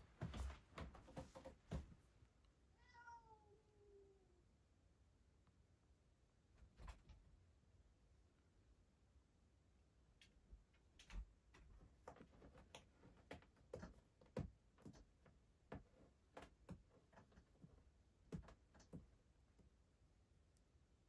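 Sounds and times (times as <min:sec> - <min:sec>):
faint irregular clicks and taps: 0:10.1 - 0:19.8.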